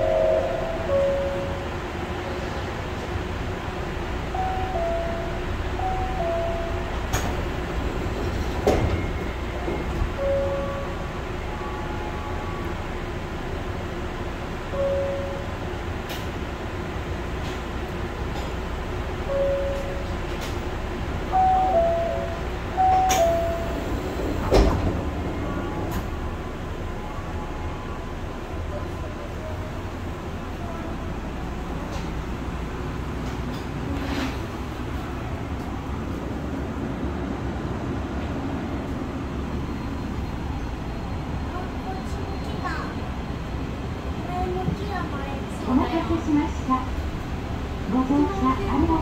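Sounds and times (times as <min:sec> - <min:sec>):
short beep: 0:00.0 - 0:01.6, 0:08.9 - 0:12.4
monorail car humming: 0:00.0 - 0:49.0
sliding doors shutting thump: 0:22.9 - 0:25.2.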